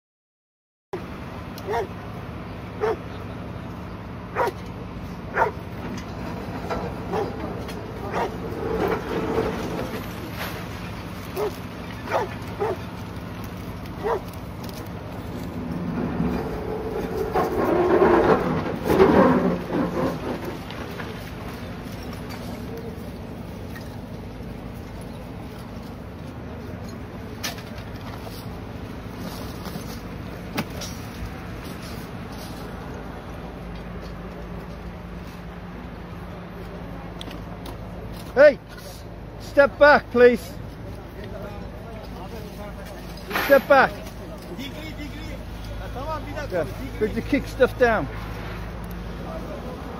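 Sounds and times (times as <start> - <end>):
low engine rumble: 1.0 - 49.9
dog barking: 1.6 - 1.9, 2.8 - 3.0, 4.3 - 4.6, 5.3 - 5.6, 7.1 - 7.3, 8.1 - 8.4, 11.4 - 12.8, 14.0 - 14.3.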